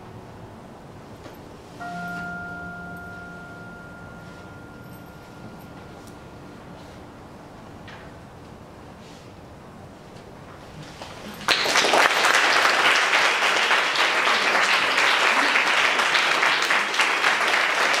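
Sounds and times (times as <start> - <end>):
audience applause: 11.0 - 18.0.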